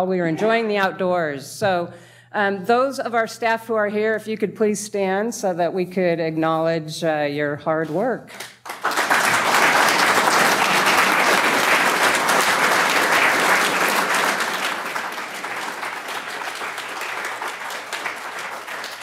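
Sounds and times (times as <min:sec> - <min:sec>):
audience applauding: 0:08.6 - 0:19.0.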